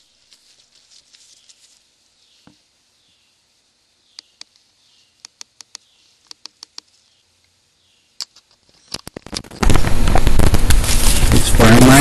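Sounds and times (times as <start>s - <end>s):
leaves crackling against microphone: 0.0s - 2.6s, 8.2s - 12.0s
sharp ticks: 5.2s - 6.9s.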